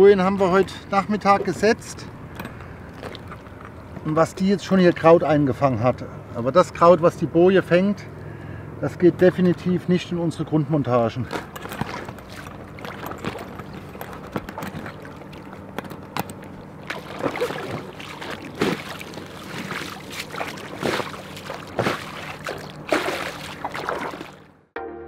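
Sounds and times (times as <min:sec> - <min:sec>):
water splashing and dripping: 0:11.6 - 0:24.5.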